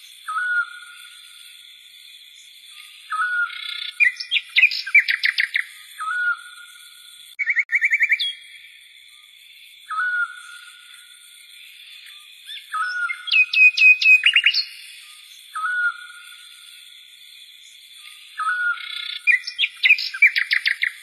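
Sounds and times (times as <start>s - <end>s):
bird trill: 0.0s - 1.2s, 2.4s - 8.7s, 9.8s - 11.0s, 11.9s - 16.7s, 18.0s - 21.0s
bird chirps: 0.0s - 21.0s.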